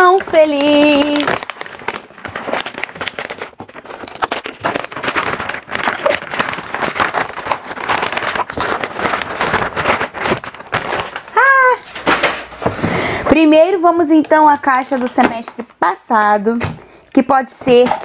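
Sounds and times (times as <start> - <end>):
packaging crinkling and rustling: 0.0 - 18.0
person exclaiming: 11.3 - 11.8.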